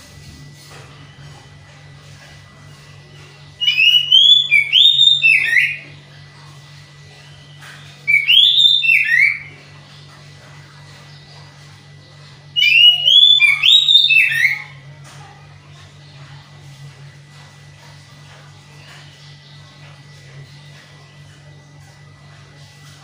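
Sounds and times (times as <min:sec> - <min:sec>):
bird singing whistled notes: 0:03.5 - 0:05.9, 0:07.8 - 0:09.5, 0:12.6 - 0:14.8.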